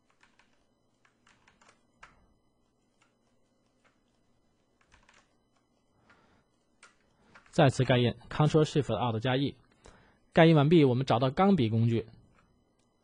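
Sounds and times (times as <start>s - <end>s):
computer keys clicking: 0.0s - 2.3s, 4.8s - 6.2s.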